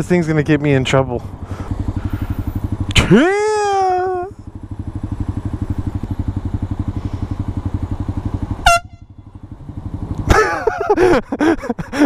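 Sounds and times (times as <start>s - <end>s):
motorcycle engine idling: 0.0s - 12.0s
air horn blasts: 8.6s - 9.2s.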